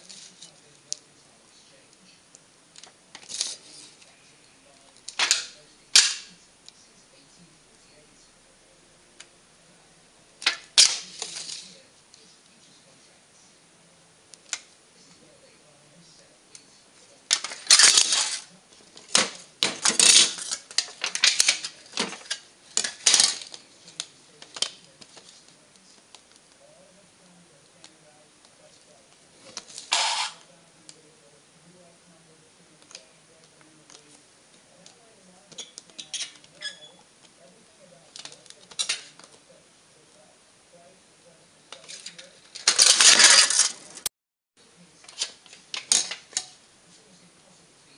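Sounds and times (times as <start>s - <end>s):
pen squeaking on metal can: 29.9s - 30.4s, 35.5s - 37.0s.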